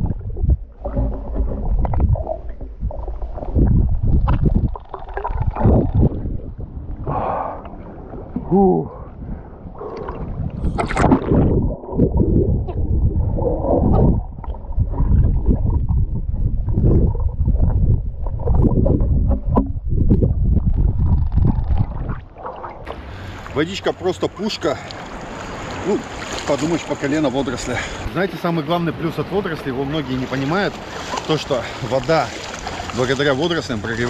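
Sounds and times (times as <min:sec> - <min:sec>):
muffled underwater gurgling: 0:00.0 - 0:23.1.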